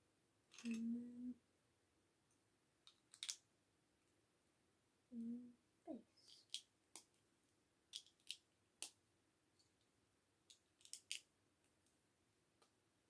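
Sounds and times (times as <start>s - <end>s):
plastic bricks clicking together: 0.5s - 0.8s, 2.9s - 3.4s, 6.3s - 7.2s, 7.9s - 9.0s, 10.4s - 11.3s.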